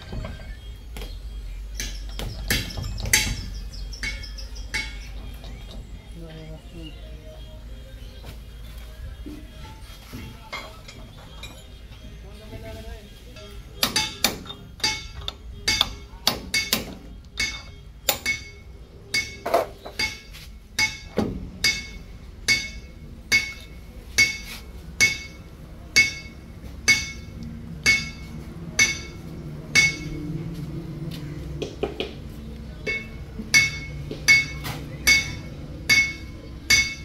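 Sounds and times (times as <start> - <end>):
hammer striking metal: 1.8 - 5.3, 13.4 - 30.3, 32.8 - 37.0.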